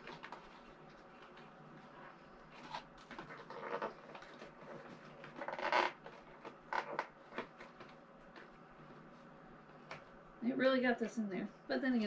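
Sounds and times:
packaging crinkles: 0.0 - 8.0
packaging rustling and scraping: 0.0 - 9.1.

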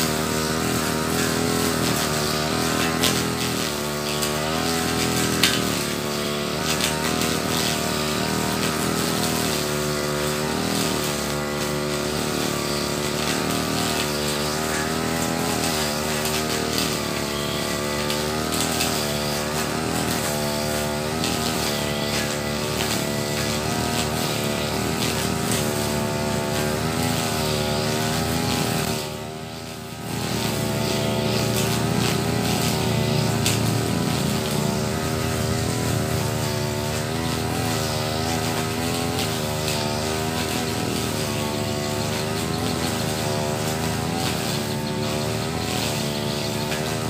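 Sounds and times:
brush cutter engine revving: 0.0 - 47.0.

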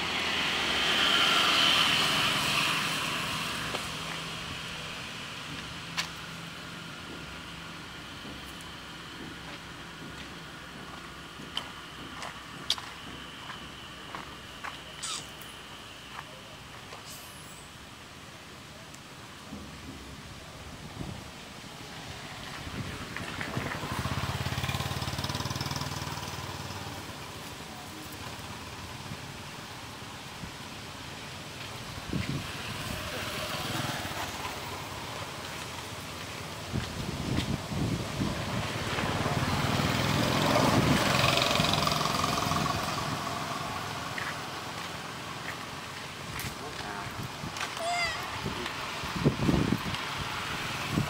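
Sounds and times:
small engine passing by: 0.0 - 5.7, 22.0 - 30.2, 32.1 - 51.0
outdoor hiss: 0.0 - 51.0.

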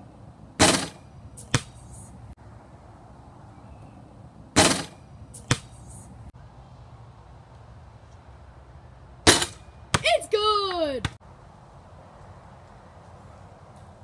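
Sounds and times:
basketball clanging on rim: 0.6 - 1.7, 4.6 - 5.7, 9.3 - 10.1
basketball bouncing on pavers: 0.6 - 1.8, 4.6 - 5.8, 9.3 - 10.3.

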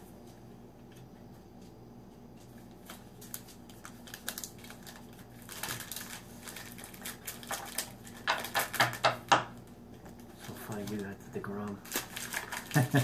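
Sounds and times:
plastic wrapper crinkling: 2.6 - 13.0.

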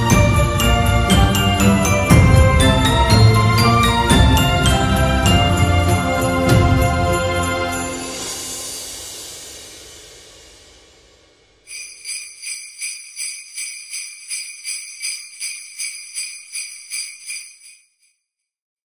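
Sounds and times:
jingle bells shaken: 0.0 - 8.7, 11.7 - 18.1
music: 0.0 - 18.0.

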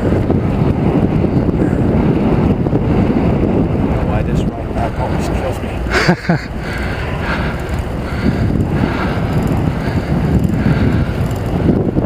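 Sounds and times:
bike tyre rumble on pavement: 0.0 - 12.0
wind buffeting microphone: 0.0 - 12.0
rider panting: 1.3 - 2.3, 4.8 - 12.0.

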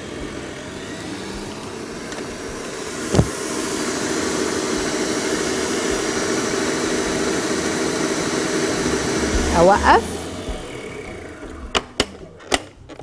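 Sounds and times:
electric stand mixer running: 0.0 - 12.6
sharp tap: 3.1 - 3.3.

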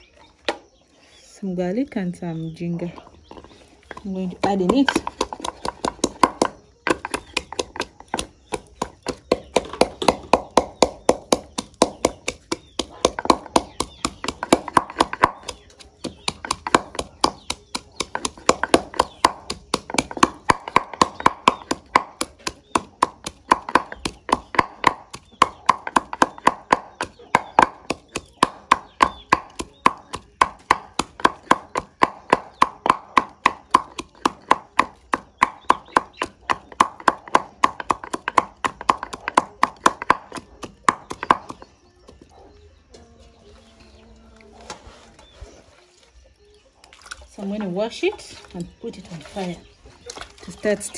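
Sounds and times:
wooden pestle pounding in mortar: 3.9 - 41.7.

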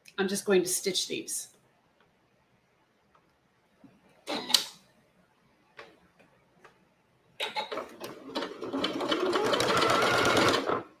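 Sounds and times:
sewing machine stitching: 7.4 - 11.0.

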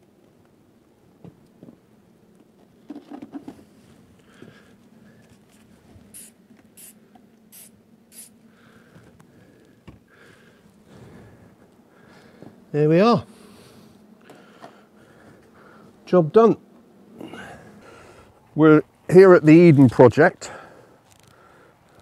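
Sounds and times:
spray bottle squirts: 6.1 - 8.3.

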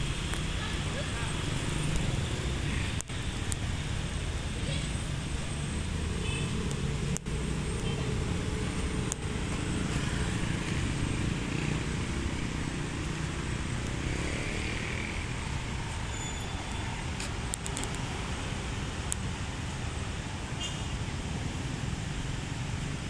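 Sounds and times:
cars and motorcycles passing: 0.0 - 23.0.

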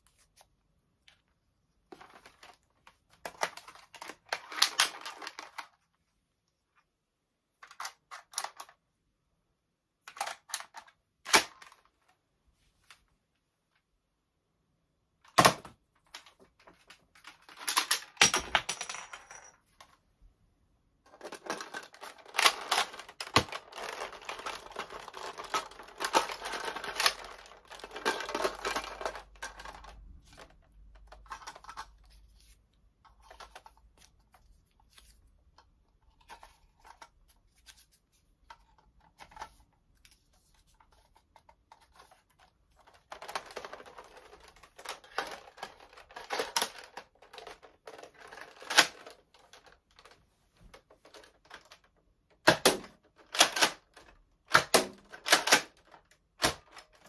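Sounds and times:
plastic toy blasters clicking and rattling: 2.0 - 5.8, 10.1 - 11.8, 15.3 - 18.7, 21.1 - 32.0, 40.9 - 50.1, 51.0 - 57.0.

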